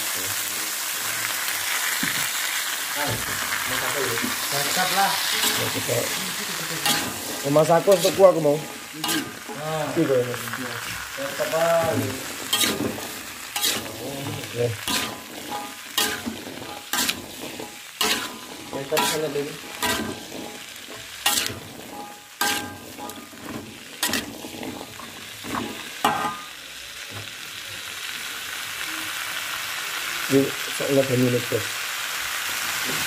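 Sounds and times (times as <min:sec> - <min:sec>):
green beans sizzling in oil: 0:00.0 - 0:33.0
metal spatula clanking on pan: 0:04.6 - 0:06.2, 0:06.8 - 0:10.2, 0:11.2 - 0:26.5.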